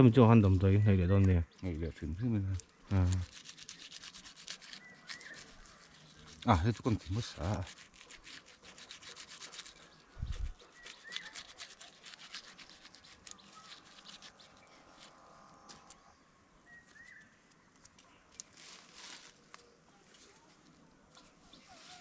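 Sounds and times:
knife scraping bark: 2.5s - 16.0s
faint bird chirps: 3.7s - 7.2s, 9.6s - 18.5s, 19.3s - 22.0s.

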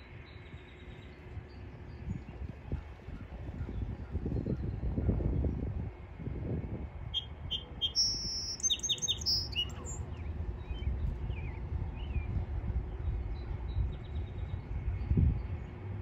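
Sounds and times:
low steady rumble: 0.0s - 16.0s
songbird singing: 7.1s - 15.8s
faint bird chirps: 7.2s - 10.0s.

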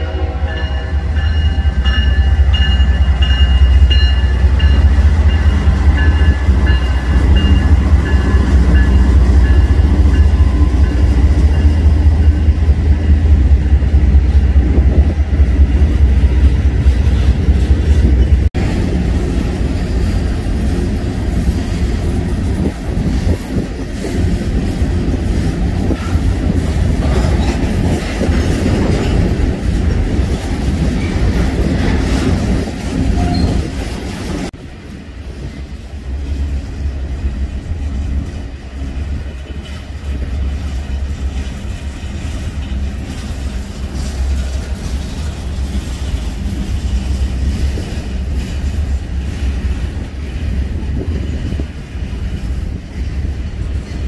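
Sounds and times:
train horn blast: 0.0s - 2.5s
diesel locomotive engine rumble: 0.0s - 54.0s.

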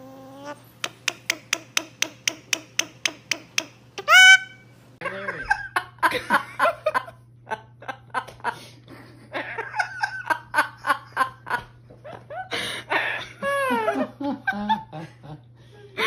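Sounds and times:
parrots laughing: 0.0s - 0.6s, 1.3s - 16.0s
woman laughing: 5.0s - 16.0s.

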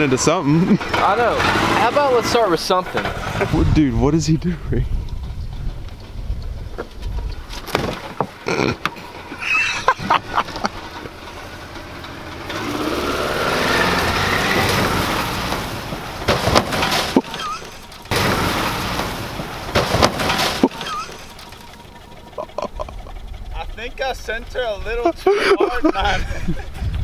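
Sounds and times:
car engine revving hard: 0.0s - 3.7s, 10.2s - 21.2s
car crashing into logs: 7.5s - 8.9s, 12.2s - 21.8s.

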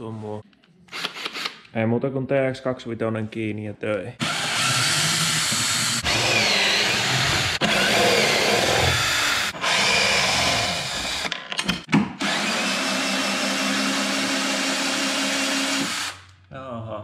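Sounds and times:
cordless drill running in bursts: 4.2s - 11.2s, 12.2s - 16.2s.

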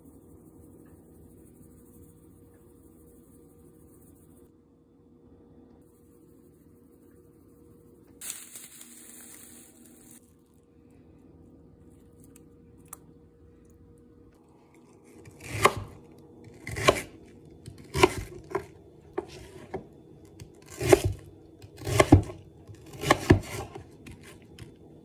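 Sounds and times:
knife chopping on plastic board: 15.2s - 19.8s, 20.4s - 24.7s.

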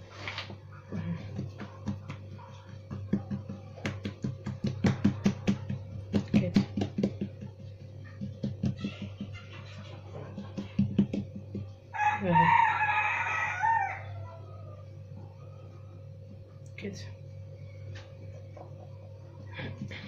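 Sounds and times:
steady low hum: 0.0s - 20.0s
fingertips patting bread dough: 0.5s - 12.1s.

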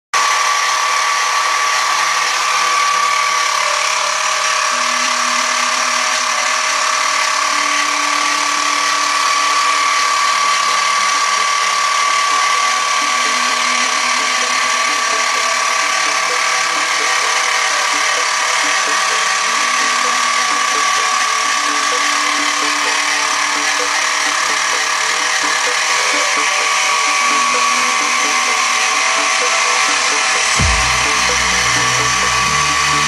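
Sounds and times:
mill spindle motor whine: 0.2s - 33.0s.

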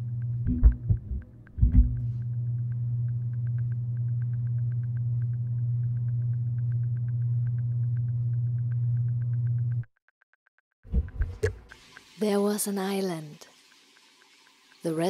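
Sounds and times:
steady low hum: 0.0s - 9.8s.

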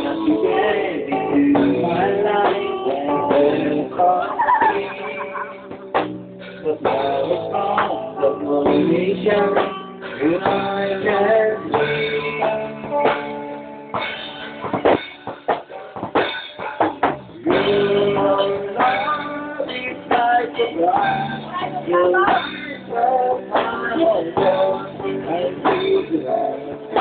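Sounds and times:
guitar chords: 0.0s - 27.0s
drums striking: 1.1s - 27.0s.

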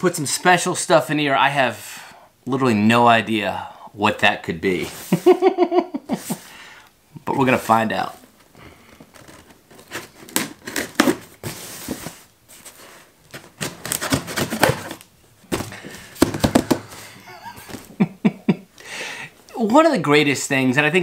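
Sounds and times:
man laughing: 5.0s - 6.5s, 16.4s - 18.7s
tape tearing: 9.1s - 12.1s, 13.3s - 15.1s
knocks on cardboard: 15.5s - 16.9s.

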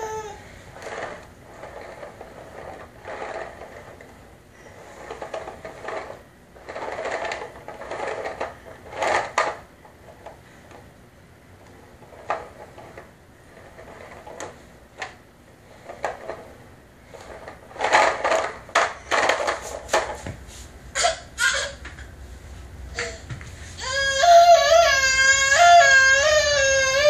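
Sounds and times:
plastic toy car clicks and rattles: 5.0s - 10.8s, 12.0s - 15.2s, 17.1s - 20.1s.

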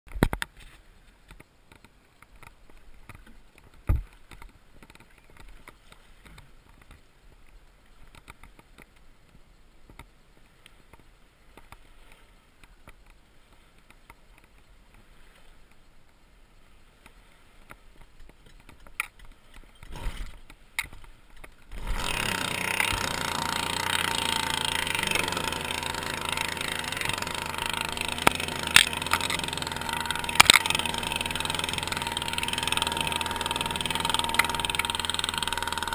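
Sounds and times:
model boat petrol engine running: 21.7s - 35.9s.

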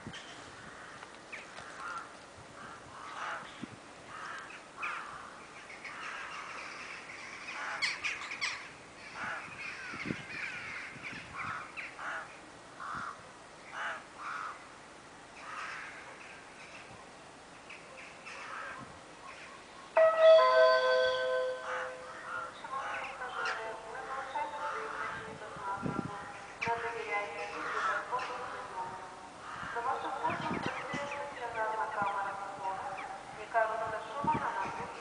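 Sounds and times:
crows cawing: 0.6s - 3.5s, 4.1s - 13.2s, 13.8s - 14.6s, 15.4s - 16.1s, 18.3s - 18.8s, 20.0s - 23.0s, 27.5s - 28.1s, 29.4s - 30.1s
loud train horn: 20.0s - 22.4s.

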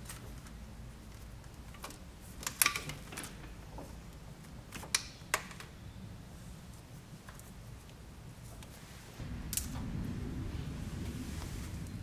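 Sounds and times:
plastic connectors clicking and rattling: 0.0s - 3.5s
low steady hum: 0.0s - 12.0s.

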